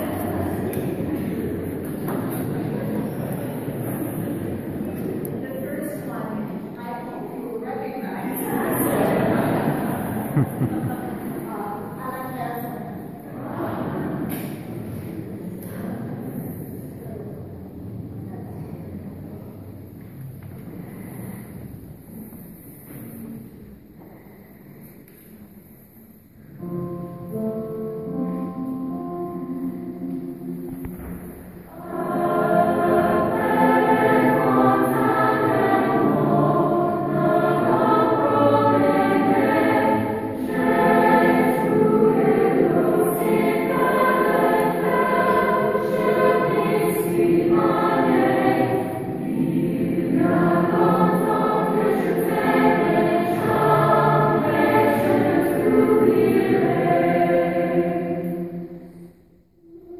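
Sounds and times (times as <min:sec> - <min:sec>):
children's chorus singing: 0:00.0 - 0:05.2, 0:08.2 - 0:12.0, 0:12.8 - 0:17.0, 0:28.1 - 0:59.9.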